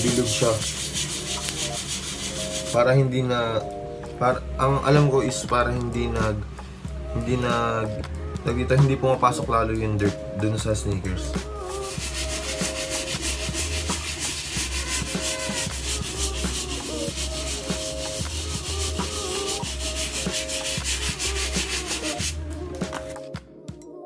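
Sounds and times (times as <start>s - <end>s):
brush scrubbing a sneaker: 0.0s - 2.8s, 11.6s - 22.4s
quiet background music: 0.0s - 24.0s.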